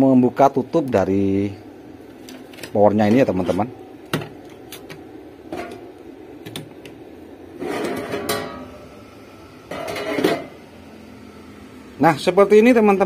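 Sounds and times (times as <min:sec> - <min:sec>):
metal cover scraping and clanking: 0:07.6 - 0:08.7, 0:09.7 - 0:10.6.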